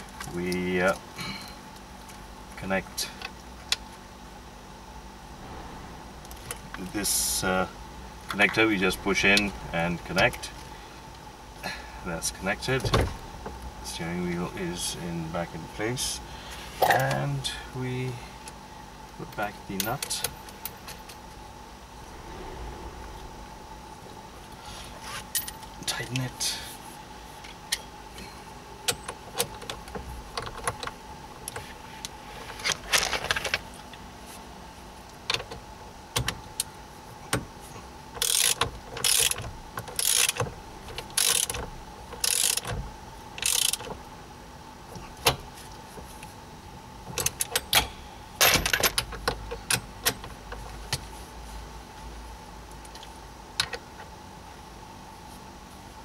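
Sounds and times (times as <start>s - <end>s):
ratchet wrench clicking: 38.2s - 39.4s, 40.0s - 40.4s, 41.2s - 41.6s, 42.2s - 42.7s, 43.4s - 43.9s.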